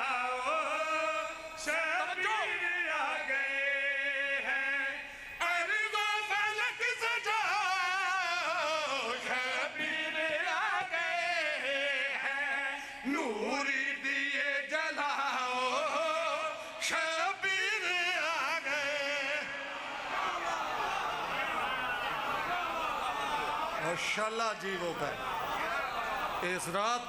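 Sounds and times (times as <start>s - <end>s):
men chanting: 17.7s - 27.0s.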